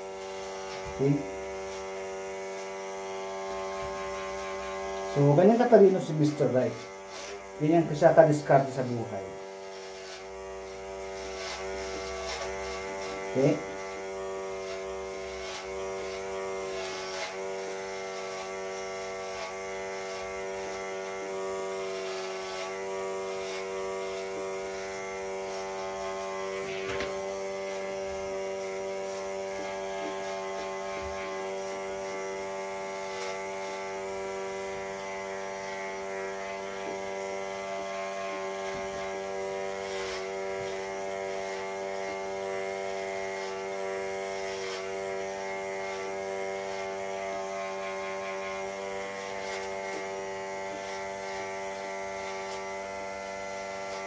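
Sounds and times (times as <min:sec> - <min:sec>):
electric hair clipper buzzing: 0:00.0 - 0:54.0.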